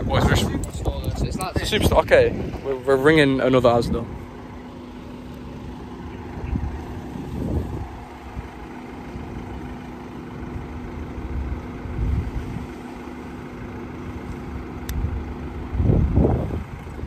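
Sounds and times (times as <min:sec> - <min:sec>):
wind buffeting microphone: 0:00.0 - 0:04.3, 0:06.0 - 0:09.6, 0:10.6 - 0:12.8, 0:14.9 - 0:17.0
steady low hum: 0:00.0 - 0:17.0.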